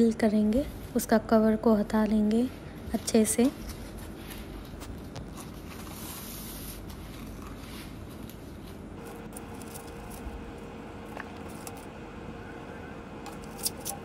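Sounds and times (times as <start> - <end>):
corn husks rustling and tearing: 9.0 - 12.0.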